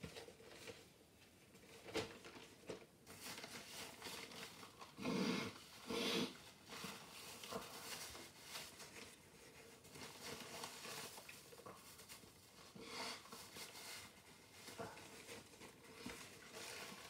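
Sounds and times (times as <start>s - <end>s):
paper towel rustling: 0.0s - 17.0s
nose blowing into paper towel: 5.0s - 6.5s.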